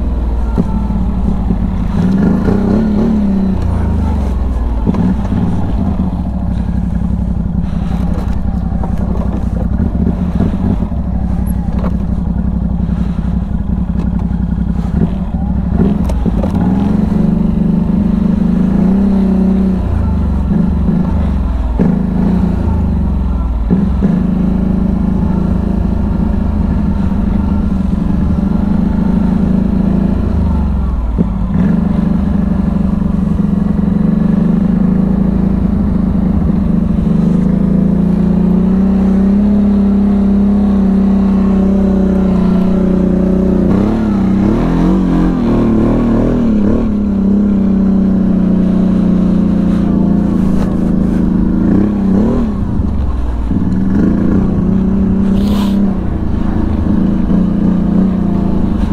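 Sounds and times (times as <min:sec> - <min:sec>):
atv engine running: 0:00.0 - 0:58.9.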